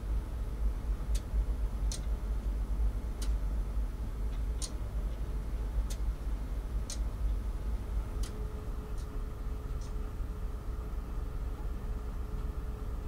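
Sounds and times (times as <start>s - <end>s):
ship engine low rumble: 0.0s - 13.0s
sharp light ticks: 1.1s - 2.2s, 3.2s - 3.4s, 4.3s - 6.1s, 6.8s - 7.4s, 8.2s - 9.2s, 9.8s - 10.0s.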